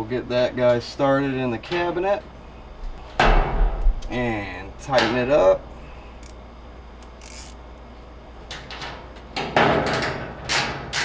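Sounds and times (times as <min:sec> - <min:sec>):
ratchet strokes tightening screw: 0:07.1 - 0:07.6.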